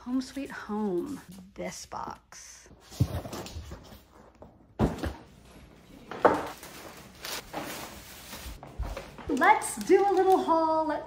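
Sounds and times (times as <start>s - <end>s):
shopping bags rustling: 6.0s - 11.0s.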